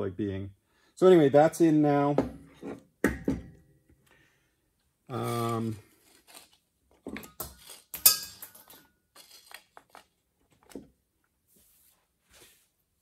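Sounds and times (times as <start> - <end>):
metal spring clattering: 7.2 - 8.9
metallic ring: 8.0 - 8.9.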